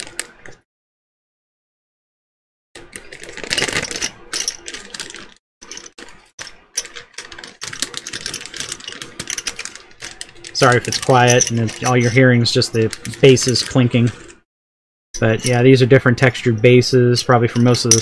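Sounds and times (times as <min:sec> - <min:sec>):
plastic pieces clinking together: 0:02.8 - 0:14.2, 0:17.5 - 0:18.0.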